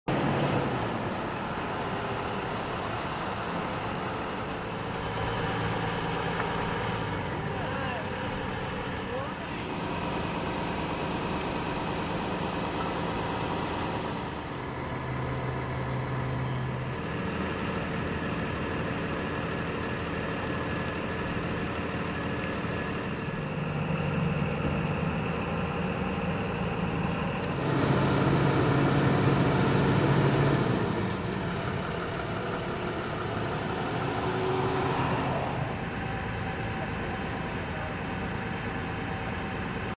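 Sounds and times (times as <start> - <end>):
truck engines idling: 0.1 - 40.0.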